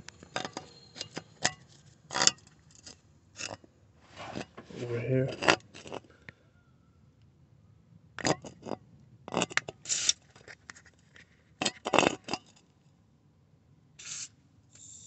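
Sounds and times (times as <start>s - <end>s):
can clicking and rattling: 9.3s - 10.8s, 14.0s - 15.0s.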